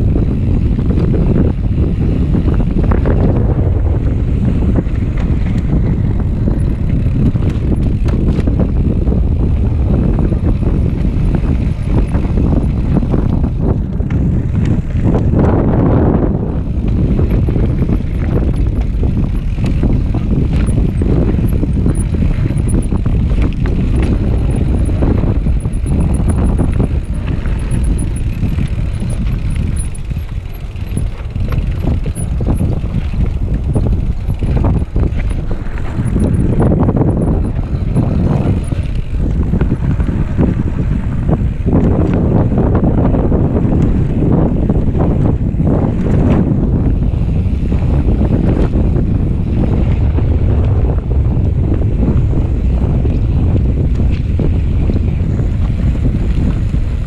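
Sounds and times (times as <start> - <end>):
bike rattling and knocking: 0.0 - 57.0
wind rumbling on microphone: 0.0 - 57.0.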